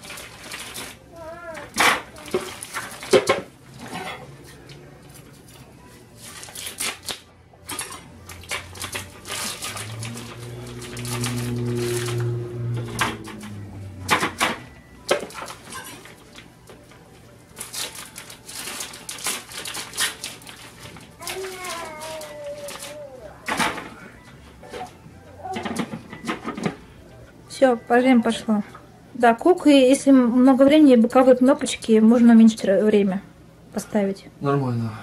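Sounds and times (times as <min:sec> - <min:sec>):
plastic packaging crinkling: 0:08.3 - 0:12.2, 0:17.5 - 0:23.1
low hum: 0:09.8 - 0:15.0.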